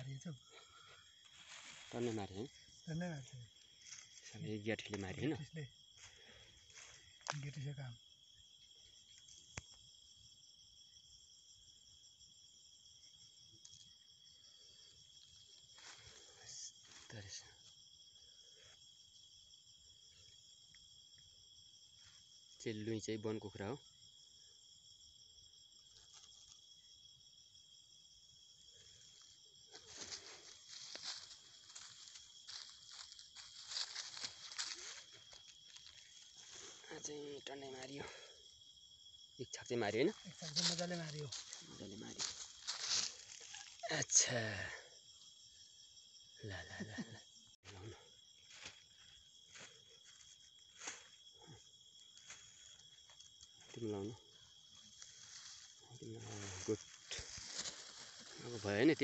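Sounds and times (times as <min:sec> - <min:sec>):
crickets chirring: 0:00.0 - 0:59.0
rustling: 0:54.4 - 0:58.8.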